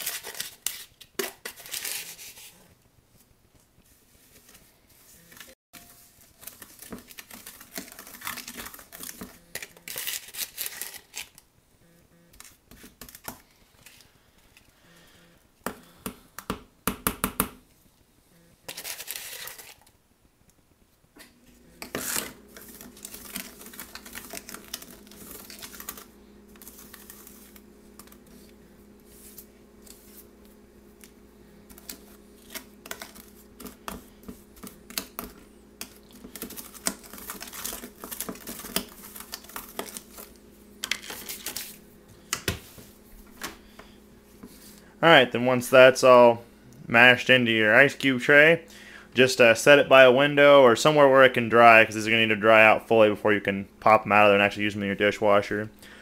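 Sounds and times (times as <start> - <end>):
metal spoon scraping plastic: 0.0 - 2.6, 6.4 - 11.4, 18.7 - 19.9, 21.8 - 28.2
steady low hum: 11.4 - 16.9, 17.8 - 19.4, 20.0 - 56.0.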